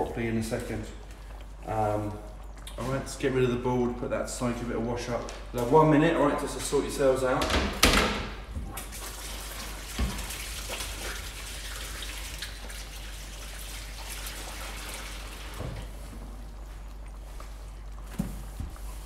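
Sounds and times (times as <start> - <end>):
tap water running into sink: 7.5 - 16.0.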